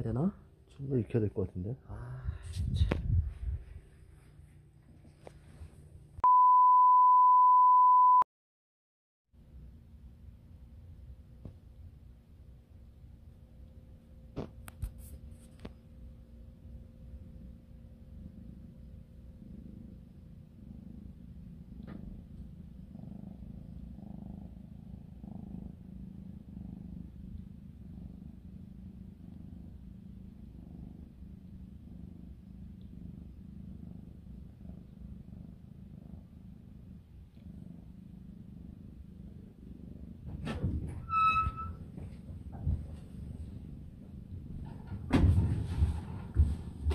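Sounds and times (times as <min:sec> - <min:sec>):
brief high-pitched tone: 0:06.2 - 0:08.3
cat purring: 0:15.3 - 0:46.9.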